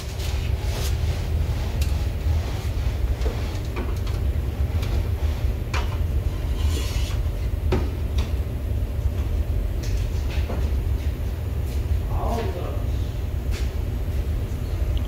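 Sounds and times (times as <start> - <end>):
low workshop rumble: 0.0 - 15.0.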